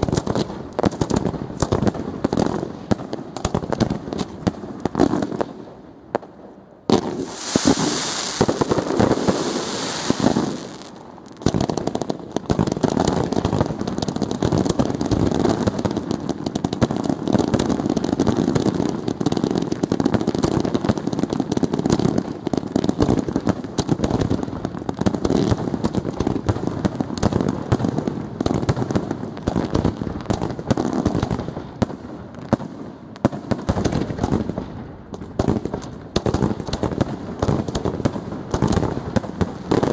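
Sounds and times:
loud firework hiss: 0:06.9 - 0:11.1
fireworks shells bursting: 0:06.9 - 0:11.6.

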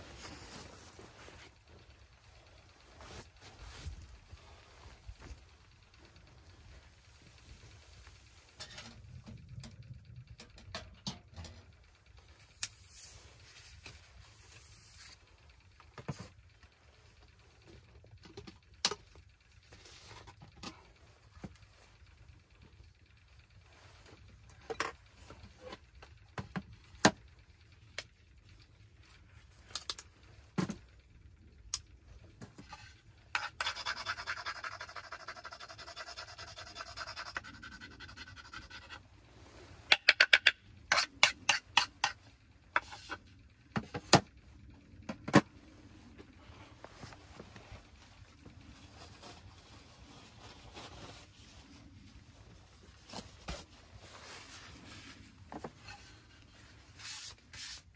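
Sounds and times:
utensils knocking and clicking: 0:39.9 - 0:42.2.

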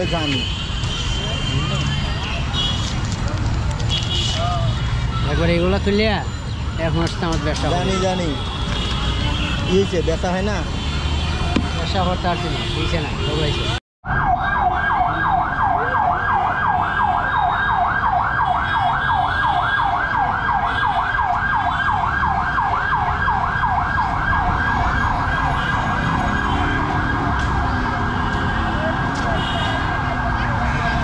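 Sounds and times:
street noise: 0:00.0 - 0:31.0
siren yelping: 0:14.0 - 0:30.6.

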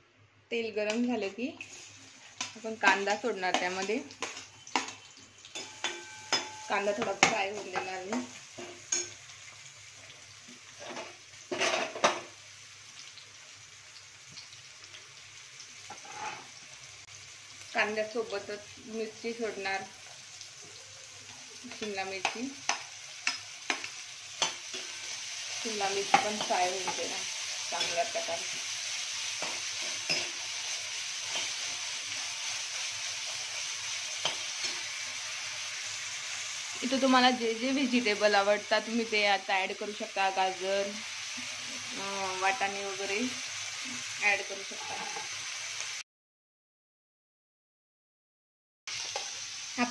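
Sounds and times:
onion frying with faint sizzle: 0:00.5 - 0:46.0, 0:48.9 - 0:49.9
steel spoon scraping a pan: 0:01.6 - 0:07.3, 0:15.9 - 0:16.6, 0:24.3 - 0:35.0, 0:44.5 - 0:45.4.

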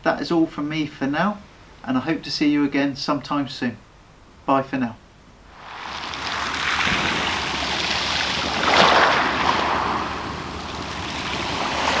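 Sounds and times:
waves washing onto shingle: 0:05.6 - 0:12.0.

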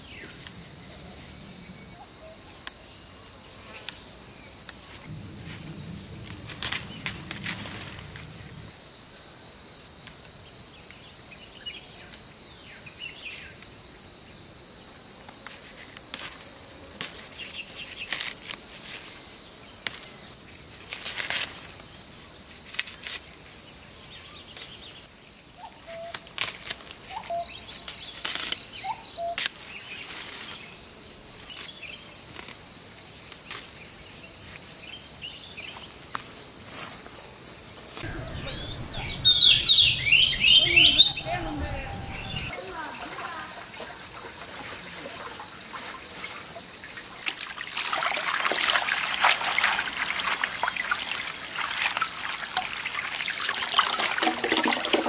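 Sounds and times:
leafy branches rustling: 0:00.0 - 0:08.9, 0:15.4 - 0:25.1, 0:25.7 - 0:55.0
insect drone: 0:00.0 - 0:54.9
birds chirping: 0:38.0 - 0:43.2.

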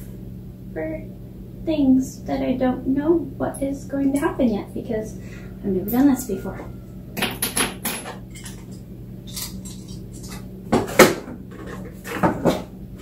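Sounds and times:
small parts clattering: 0:07.2 - 0:10.5.

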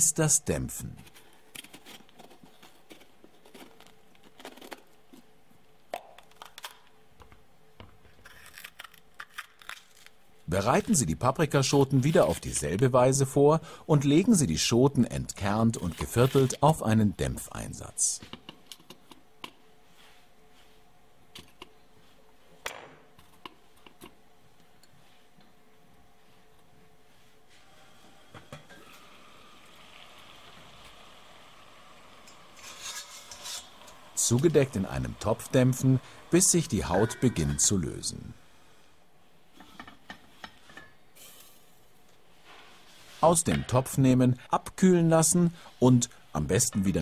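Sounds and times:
faint steady hum: 0:09.8 - 0:47.0.

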